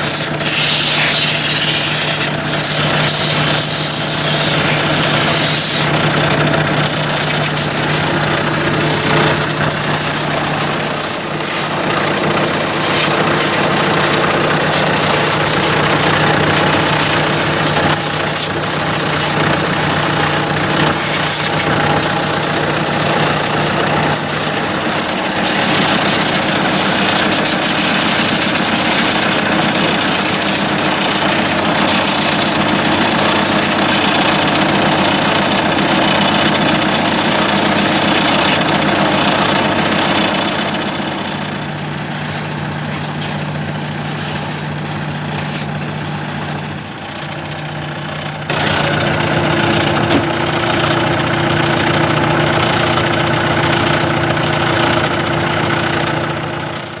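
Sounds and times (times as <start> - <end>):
loud hiss: 0.0 - 6.0, 6.8 - 46.9
tractor diesel engine idling: 0.0 - 57.0.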